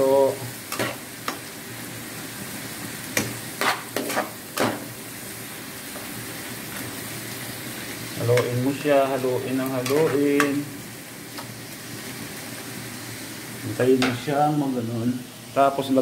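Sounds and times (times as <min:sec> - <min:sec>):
food sizzling in a pan: 0:00.0 - 0:16.0
utensil striking pan: 0:03.2 - 0:04.9.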